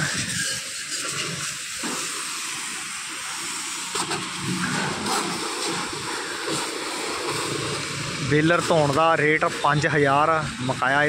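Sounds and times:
pressure washer jet hissing: 0.0 - 11.0.

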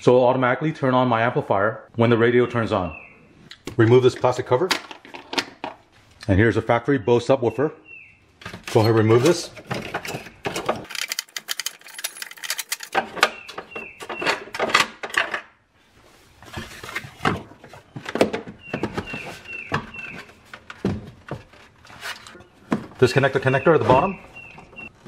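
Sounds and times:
hard plastic knocks and clatter: 8.4 - 15.5, 16.6 - 25.0.

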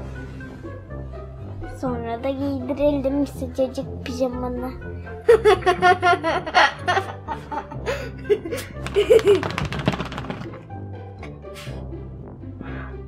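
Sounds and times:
background music: 0.0 - 13.0
girl laughing: 5.3 - 9.6.

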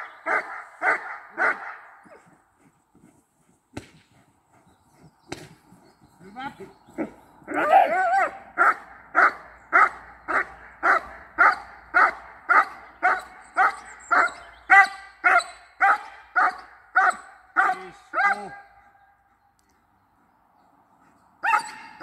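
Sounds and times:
dog barking: 0.2 - 2.2, 7.5 - 18.8, 21.4 - 22.0.

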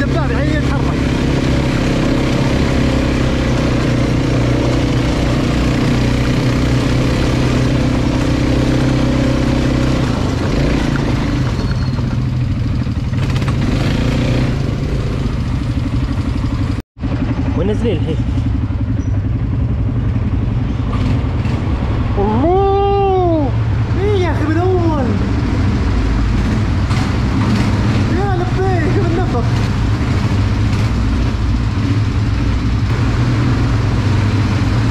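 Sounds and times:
atv engine drone: 0.0 - 34.9
clatter: 29.0 - 34.9.

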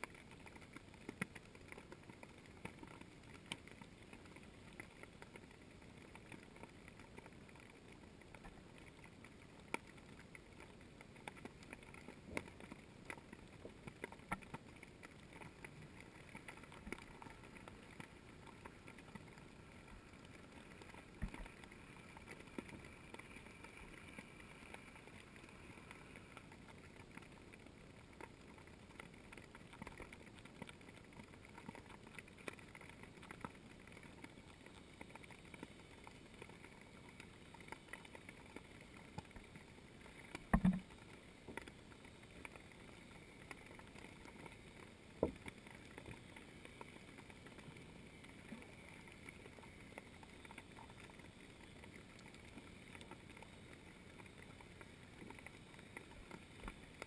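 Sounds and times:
small clicks: 0.0 - 57.0.

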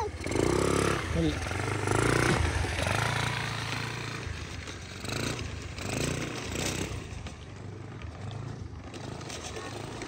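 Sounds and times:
minibike engine revving: 0.0 - 10.0.

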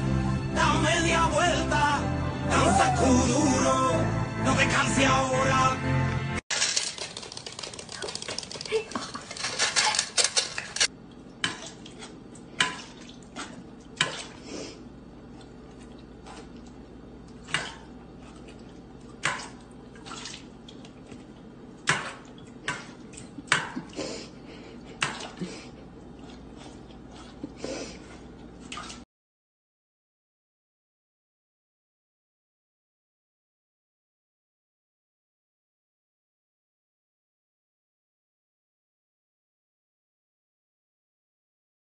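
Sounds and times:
metal dog bowls clanking: 6.5 - 10.9
quick clicks: 6.5 - 10.9.

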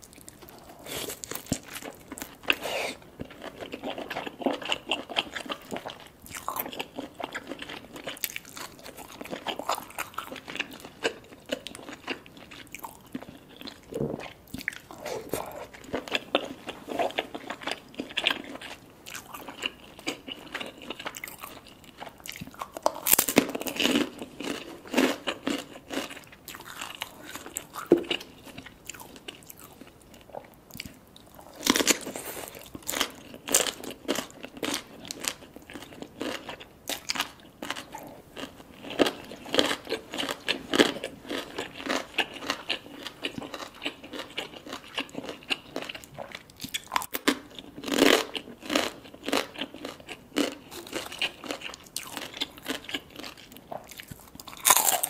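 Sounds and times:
person chewing and crunching food: 0.0 - 55.0.

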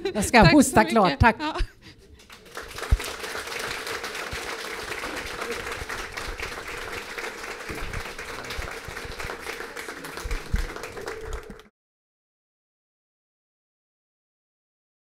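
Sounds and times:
audience applauding: 2.2 - 11.7.

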